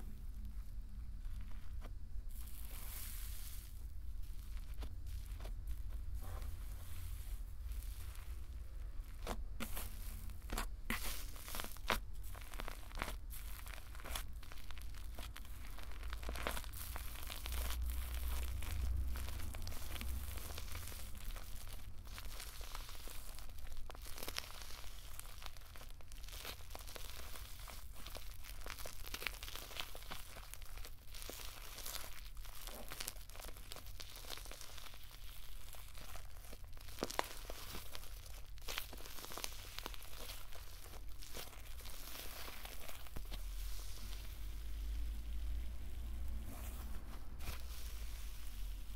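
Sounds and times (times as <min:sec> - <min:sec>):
slime crackling and tearing: 0:01.2 - 0:48.9.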